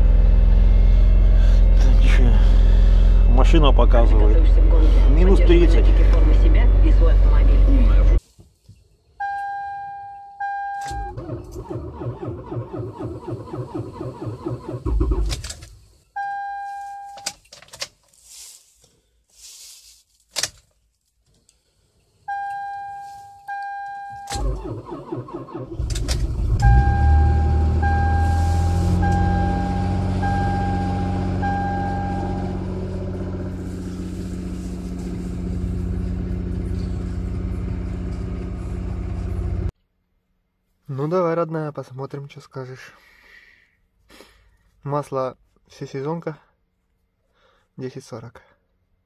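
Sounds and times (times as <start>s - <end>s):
car warning chimes: 9.2s - 11.4s, 16.2s - 17.4s, 22.3s - 24.6s, 26.6s - 32.7s
engine cranking: 10.9s - 15.7s, 24.3s - 27.8s
car engine fast idle: 24.4s - 39.7s
chime beeping: 26.7s - 32.6s.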